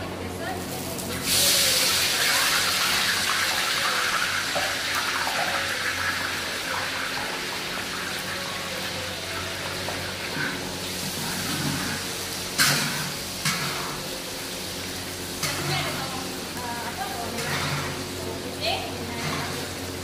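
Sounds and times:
exhaust fan humming: 0.0 - 20.0
onions sizzling in hot oil: 0.3 - 20.0.

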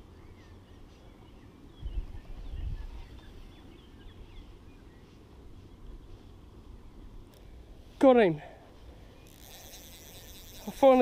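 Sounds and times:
small birds chirping: 0.0 - 7.6, 8.6 - 11.0.

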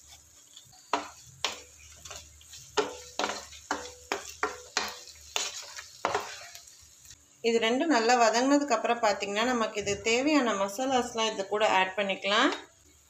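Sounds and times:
wooden spatula scraping a pan: 0.0 - 6.8
vegetables sizzling in oil: 0.0 - 13.0.

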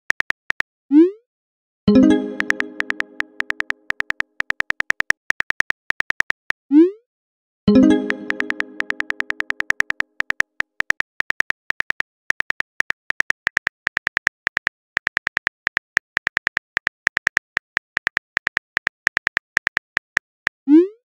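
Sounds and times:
pitched chime: 1.9 - 3.8, 7.7 - 9.4
phone keyboard tap clicks: 2.3 - 6.6, 8.0 - 20.3.

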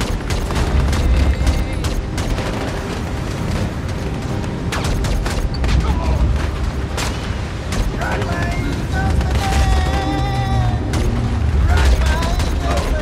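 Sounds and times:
deep steady rumble: 0.0 - 13.0
gunfire bursts: 0.0 - 13.0.

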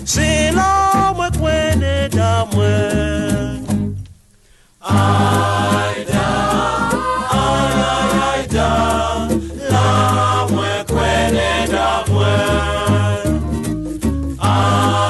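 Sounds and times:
bass line: 0.0 - 4.2, 4.8 - 15.0
group singing in chorus: 4.8 - 13.6, 14.4 - 15.0
percussion ticking: 4.9 - 15.0.

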